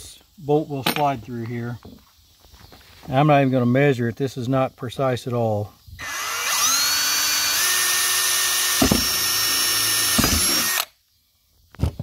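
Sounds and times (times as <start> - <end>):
power drill whining: 6.0 - 10.9
drill bit knocks: 8.6 - 10.8.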